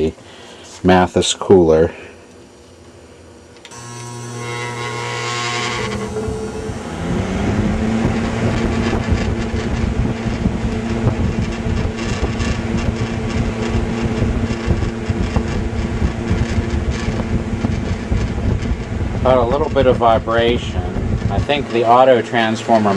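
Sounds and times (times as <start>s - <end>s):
electric fan motor humming: 0.0s - 22.9s
fan vibration: 0.0s - 22.9s
rush of air from fan blade: 5.9s - 21.7s.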